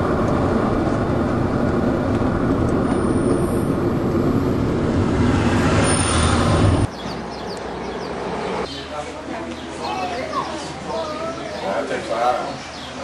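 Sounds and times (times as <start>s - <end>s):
car interior road rumble: 0.0s - 6.9s.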